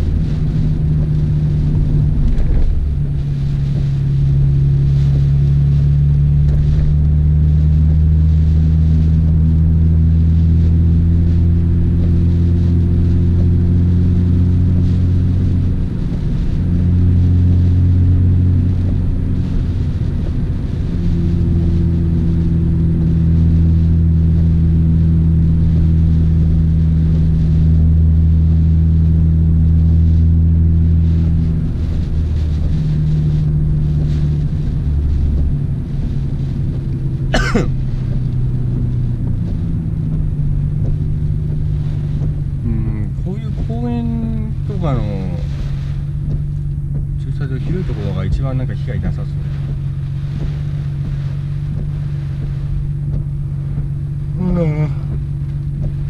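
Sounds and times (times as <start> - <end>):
car engine droning: 0.0 - 56.0
tyres hissing on wet road: 0.0 - 56.0.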